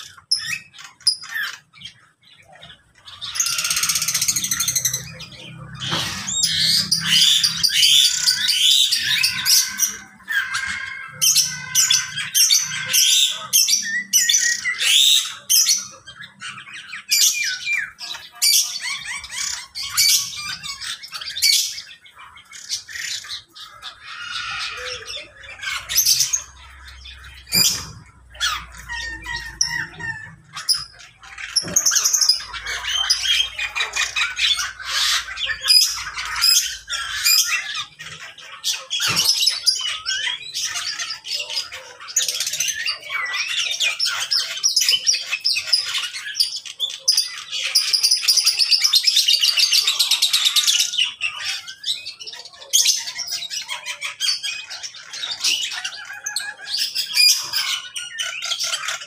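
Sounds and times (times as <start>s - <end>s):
cage birds chirping and squawking: 0.0s - 59.0s.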